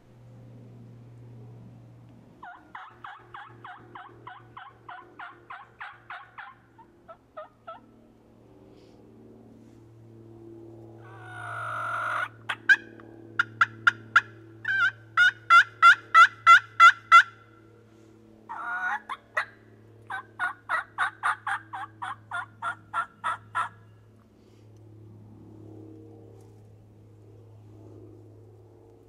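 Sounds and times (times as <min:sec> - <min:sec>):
wild turkey yelping: 0:02.4 - 0:07.8, 0:11.0 - 0:17.4, 0:18.5 - 0:19.5, 0:20.1 - 0:23.8.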